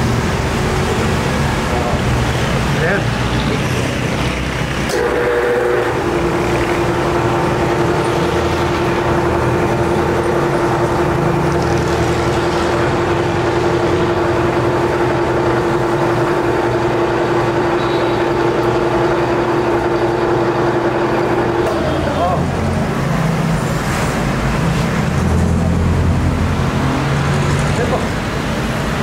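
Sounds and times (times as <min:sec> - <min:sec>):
metal lathe humming: 0:00.0 - 0:23.4.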